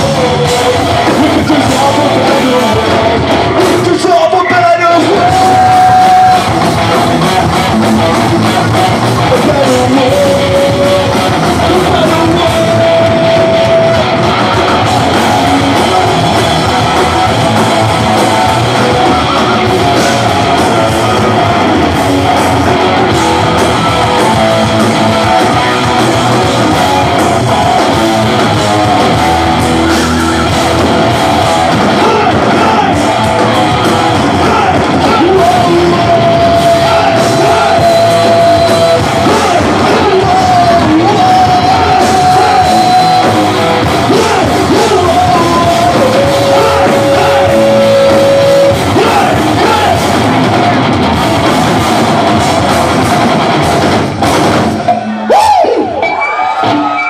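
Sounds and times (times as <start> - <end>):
person singing: 0.0 - 21.4, 31.8 - 50.1
distorted electric guitars: 0.0 - 57.0
drums: 0.0 - 57.0.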